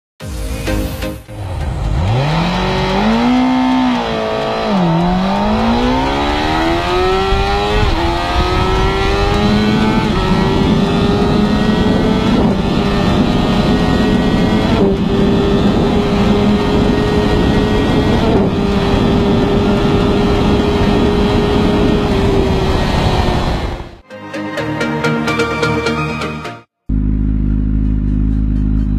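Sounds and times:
wind rushing past: 1.3 - 24.0
motorcycle engine at full throttle: 1.4 - 24.0, 26.8 - 28.9.

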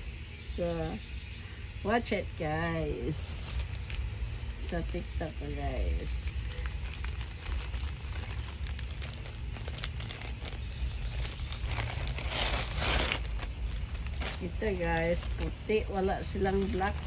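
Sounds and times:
plastic bags crinkling: 3.1 - 17.0
plastic mailer tearing open: 6.4 - 15.5.

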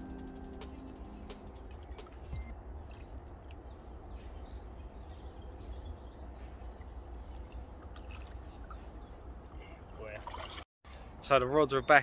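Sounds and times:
small birds chirping: 0.0 - 7.8.

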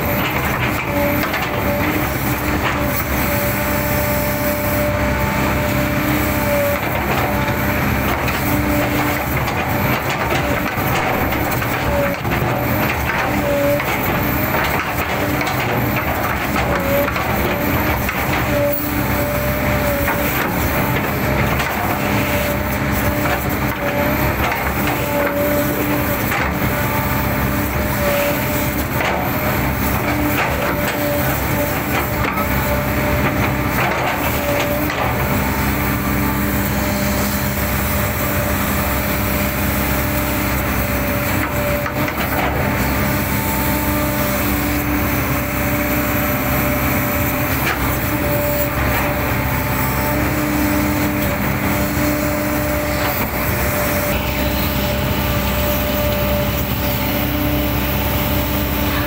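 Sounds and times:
excavator diesel engine running: 0.0 - 59.0
hydraulic whine: 0.0 - 59.0.

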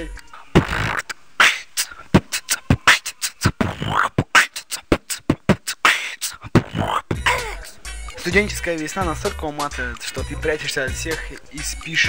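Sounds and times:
person beatboxing into a microphone: 0.2 - 7.8.

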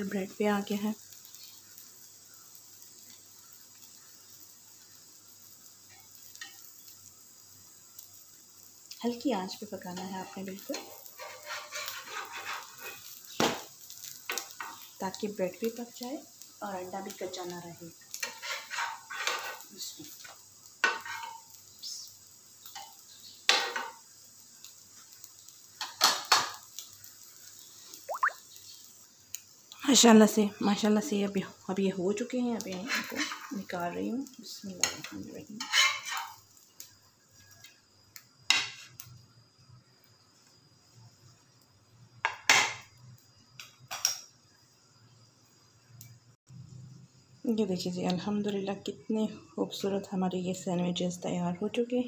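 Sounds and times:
bread sizzling on griddle: 0.0 - 52.0
metal spatula scraping griddle: 10.5 - 13.4, 18.1 - 19.7, 20.8 - 21.4, 32.6 - 33.7, 34.9 - 36.4.

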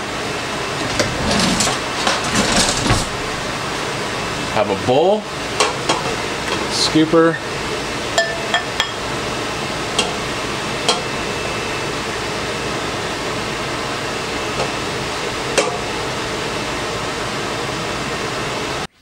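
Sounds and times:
fan-like hiss: 0.0 - 8.2.

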